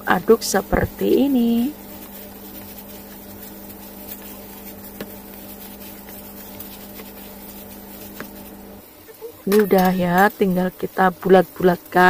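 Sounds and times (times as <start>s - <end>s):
steady low hum: 0.0s - 12.0s
hand squishing mashed potato: 1.0s - 8.8s.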